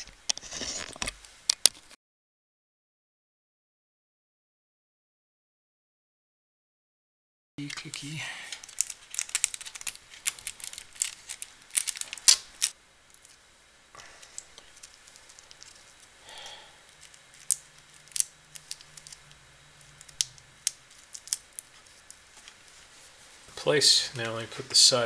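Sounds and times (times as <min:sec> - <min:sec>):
plastic connectors clicking: 0:07.6 - 0:13.3, 0:16.9 - 0:22.6
ribbon cable handling: 0:07.6 - 0:13.4, 0:14.2 - 0:16.1, 0:16.8 - 0:23.1.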